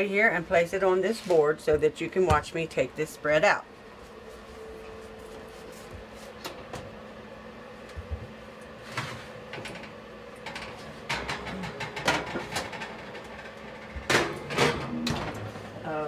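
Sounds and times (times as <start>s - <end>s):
low steady hum: 0.0s - 16.0s
oven door opening: 8.8s - 15.9s
metal oven rack clattering: 10.5s - 15.8s.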